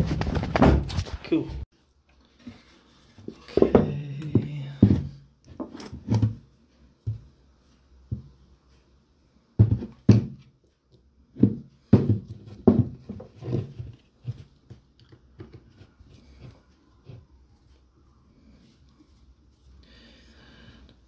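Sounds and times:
tool handling knocks and clunks: 9.6 - 10.5, 11.4 - 14.5.

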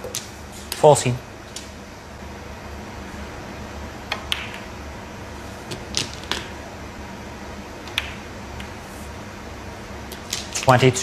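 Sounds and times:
snooker balls clicking: 4.1 - 4.7, 7.8 - 8.8.

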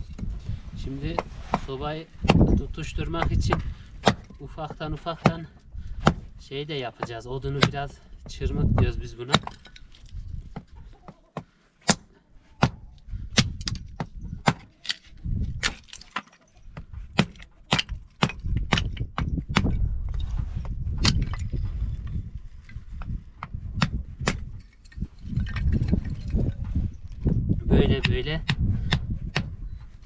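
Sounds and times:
hatchet chopping wood: 2.2 - 6.3, 7.0 - 8.0, 8.6 - 10.8, 11.4 - 19.8, 20.9 - 21.4, 23.0 - 24.6, 27.9 - 29.6.

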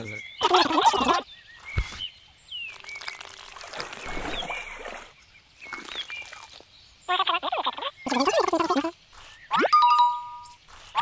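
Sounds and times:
wet splashy noise: 2.7 - 6.6.

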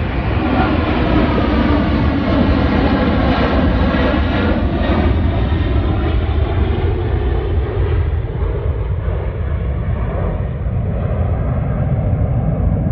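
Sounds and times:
jet airliner taking off: 0.0 - 12.9.

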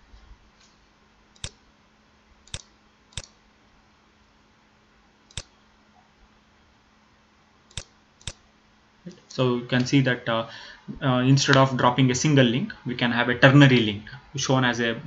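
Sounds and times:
faint room hiss: 0.0 - 15.0
computer mouse clicks: 1.4 - 1.6, 2.5 - 3.4, 5.3 - 5.5, 7.7 - 8.4.

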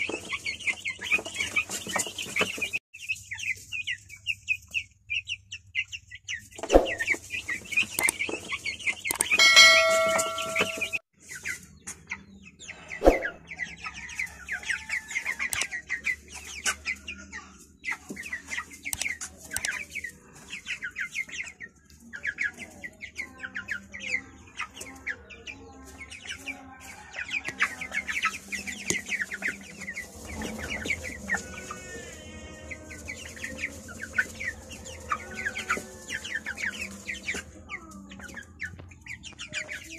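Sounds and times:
chicks peeping: 0.0 - 39.9.

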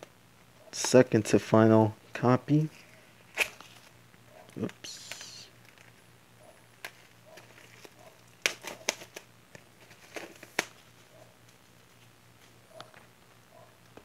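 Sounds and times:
shrink wrap crinkling: 2.8 - 6.0, 6.6 - 12.5
cd case being handled: 3.3 - 6.0, 6.6 - 11.0.

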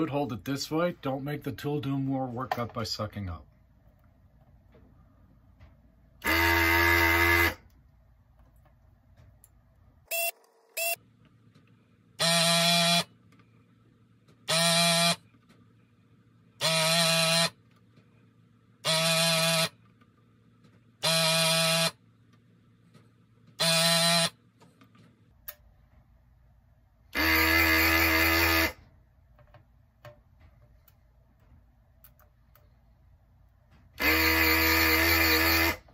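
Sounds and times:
desoldering vacuum pump buzzing: 6.2 - 7.8, 12.2 - 13.2, 14.4 - 15.4, 16.6 - 17.6, 18.8 - 19.8, 21.0 - 22.0, 23.6 - 24.4, 27.1 - 28.8, 34.0 - 35.9.

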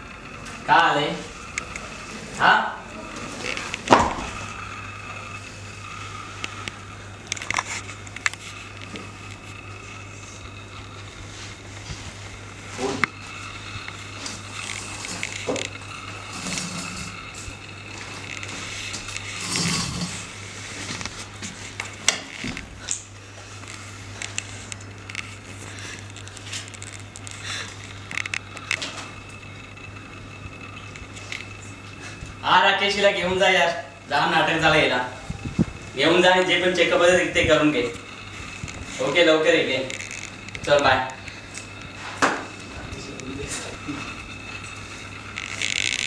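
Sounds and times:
low electrical hum: 0.0 - 46.0
faint clicks and rustles: 3.0 - 32.4, 35.3 - 46.0
small clicks and rustles: 6.4 - 12.4, 20.7 - 29.8, 39.8 - 42.0, 44.5 - 46.0.

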